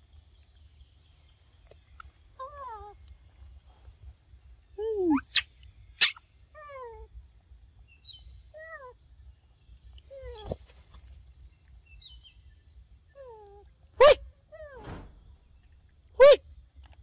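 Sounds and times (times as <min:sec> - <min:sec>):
animal yelping calls: 0:14.0 - 0:14.8.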